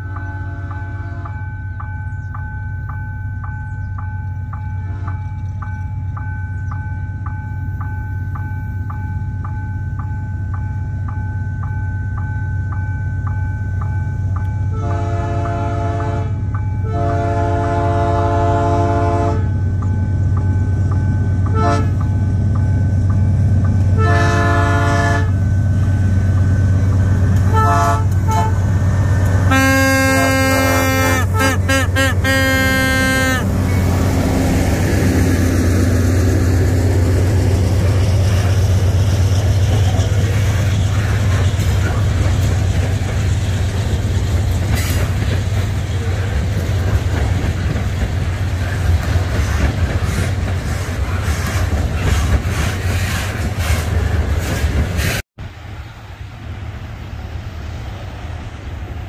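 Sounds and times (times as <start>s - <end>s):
train horn blasts: 0.0s - 1.6s, 4.8s - 5.5s, 14.7s - 19.6s, 21.5s - 22.1s, 23.9s - 25.4s, 27.4s - 28.7s, 29.4s - 34.2s
locomotive engine hum: 0.0s - 59.0s.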